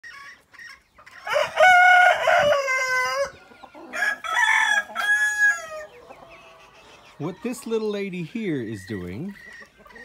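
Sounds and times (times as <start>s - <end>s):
rooster crowing: 1.2s - 6.0s.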